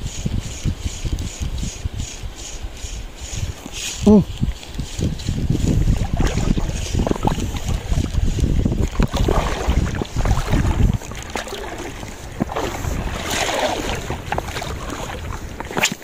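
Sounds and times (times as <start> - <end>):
wind buffeting microphone: 0.0 - 16.0
lapping sea water: 3.3 - 16.0.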